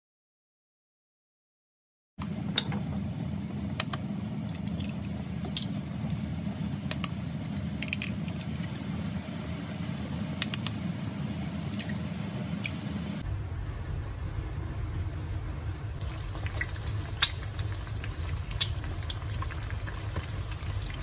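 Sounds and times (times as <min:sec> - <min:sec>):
steady low hum: 0:02.2 - 0:21.0
oil popping and crackling: 0:06.9 - 0:08.9, 0:16.0 - 0:21.0.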